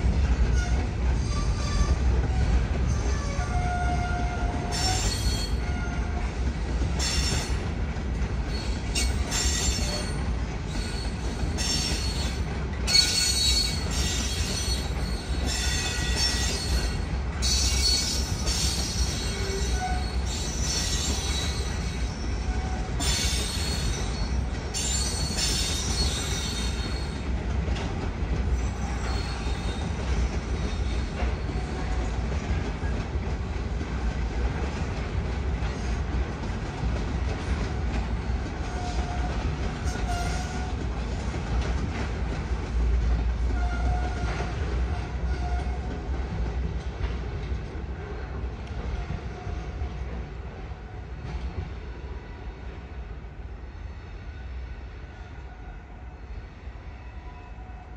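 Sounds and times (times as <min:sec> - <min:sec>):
train cars rumbling past: 0:00.0 - 0:57.9
train wheels squealing: 0:00.5 - 0:06.2, 0:07.0 - 0:07.6, 0:08.4 - 0:27.3, 0:28.5 - 0:32.1, 0:38.2 - 0:40.8.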